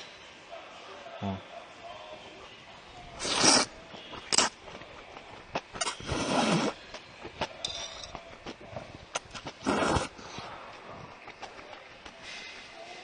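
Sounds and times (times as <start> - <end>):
person slurping noodles: 3.2 - 3.7, 5.8 - 6.8, 9.6 - 10.3.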